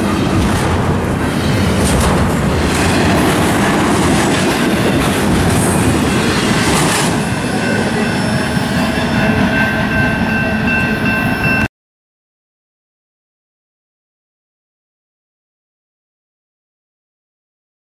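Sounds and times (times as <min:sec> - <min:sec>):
freight train wheels rumbling: 0:00.0 - 0:11.7
high ringing: 0:07.2 - 0:11.7.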